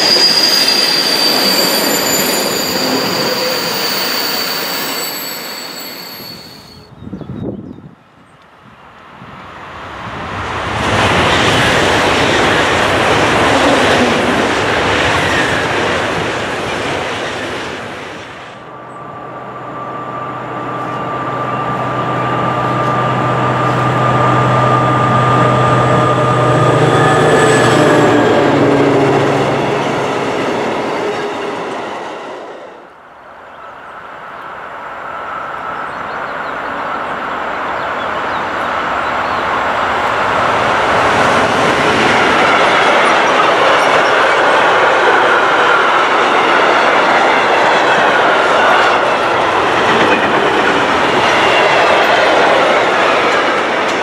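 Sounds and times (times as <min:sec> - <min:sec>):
diesel locomotive droning: 0:00.0 - 0:06.8, 0:18.6 - 0:44.5
freight train approaching: 0:00.0 - 0:54.0
high-speed train passing: 0:00.0 - 0:54.0.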